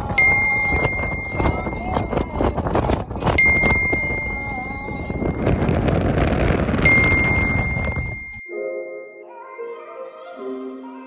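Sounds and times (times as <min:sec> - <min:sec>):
car road and wind rumble: 0:00.0 - 0:08.4
bright bell-like ding: 0:00.2 - 0:02.4, 0:03.4 - 0:09.2.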